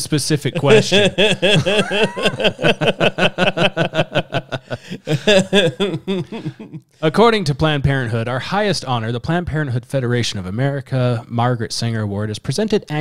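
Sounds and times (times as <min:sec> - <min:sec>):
men laughing: 0:00.5 - 0:06.8.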